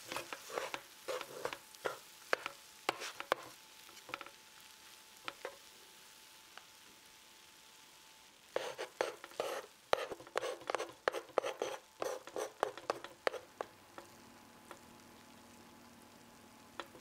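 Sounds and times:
wooden spatula scraping hot plate: 0.0s - 4.4s, 5.3s - 5.6s, 8.6s - 14.1s, 16.8s - 17.0s.

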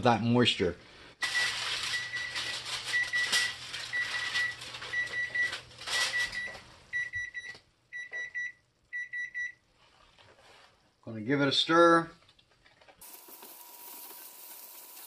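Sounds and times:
aluminium foil crinkling: 1.2s - 6.7s.

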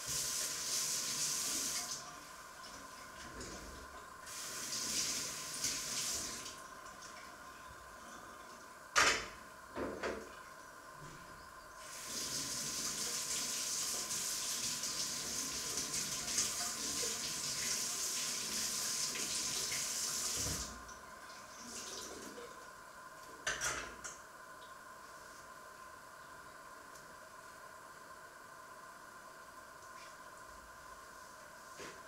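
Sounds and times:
tap running into sink: 20.3s - 20.7s.

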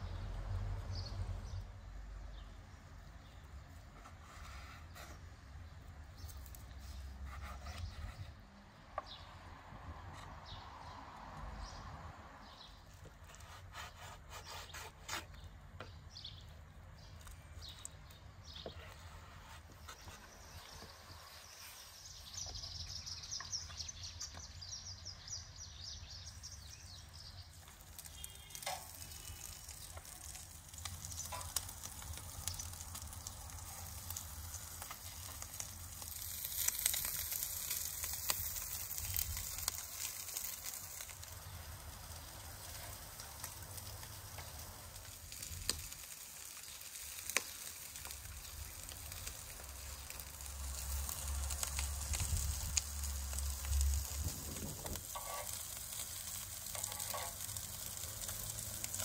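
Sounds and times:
sharp crackles: 26.4s - 59.0s
meat sizzling: 27.4s - 59.0s.

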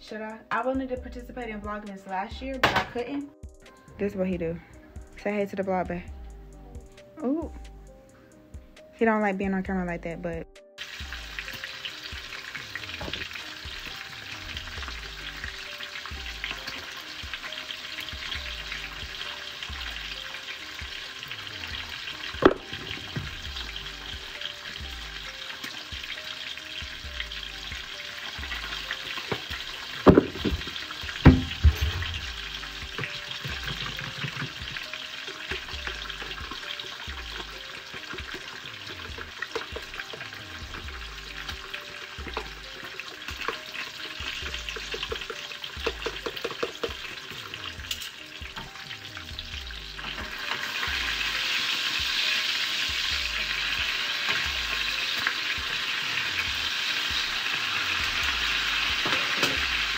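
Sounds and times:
bacon sizzling in frying pan: 10.8s - 59.9s
eggs cracking: 22.3s - 23.5s, 28.6s - 47.2s.

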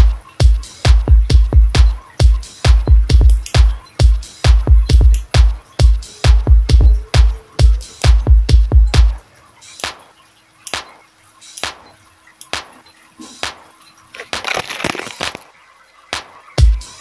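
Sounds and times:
phone clattering as it falls: 14.2s - 15.5s.

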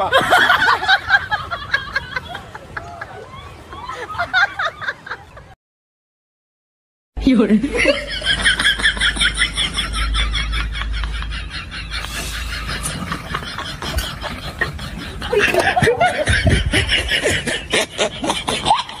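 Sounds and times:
person laughing: 9.1s - 18.9s.

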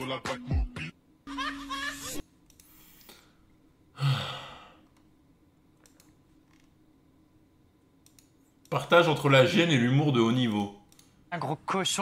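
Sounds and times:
rap music: 0.0s - 1.0s
loud breathy sigh: 4.0s - 4.8s.

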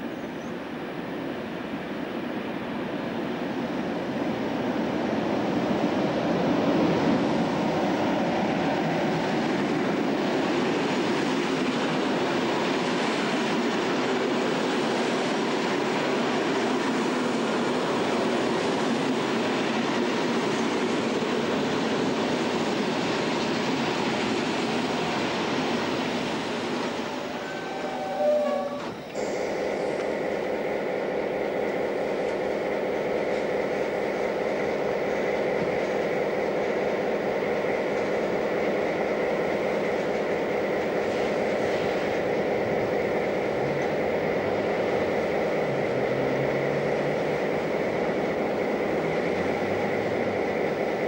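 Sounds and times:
diesel locomotive engine: 0.0s - 51.0s.

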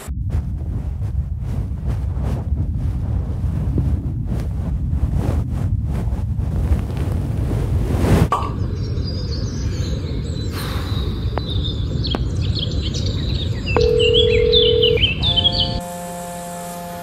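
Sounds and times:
wind: 0.0s - 17.0s
birds chirping: 8.3s - 15.8s
steady telephone tone: 13.7s - 15.8s
electronic phone tones chord: 13.8s - 16.0s.

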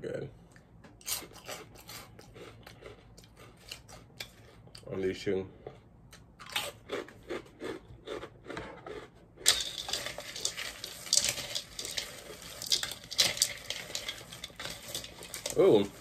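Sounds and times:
snacks stirred in plastic bowl: 1.2s - 4.8s, 6.9s - 16.0s.

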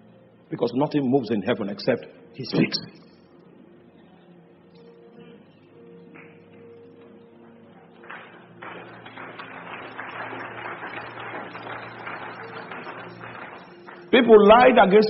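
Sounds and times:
soft keyboard notes: 0.0s - 9.1s
congregation applauding: 7.4s - 15.0s.

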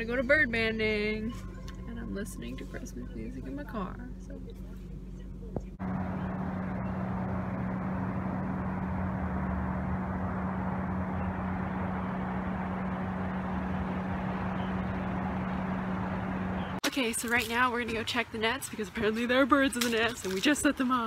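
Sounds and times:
distant road traffic hum: 0.0s - 21.0s
low drone: 5.8s - 16.8s.

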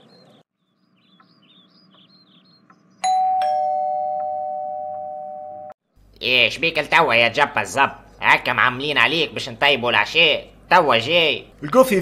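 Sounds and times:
two-note doorbell chime: 3.0s - 5.7s.

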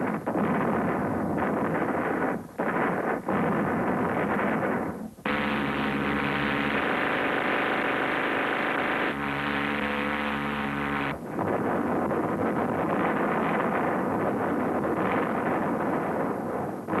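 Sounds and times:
crackle of explosions: 0.0s - 17.0s
turboprop aircraft engines droning: 5.3s - 11.3s.

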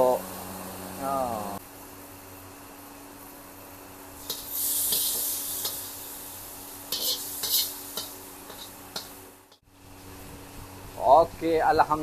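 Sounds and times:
food sizzling: 3.2s - 10.2s
metal spatula scraping wok: 4.2s - 6.1s, 6.9s - 9.2s.

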